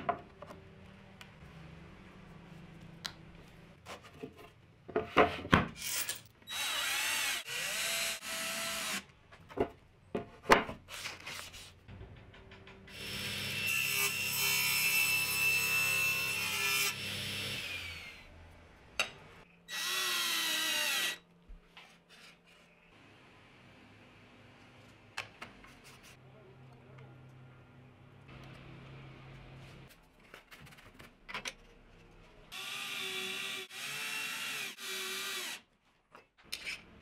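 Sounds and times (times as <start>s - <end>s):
table saw cutting: 12.9s - 18.3s.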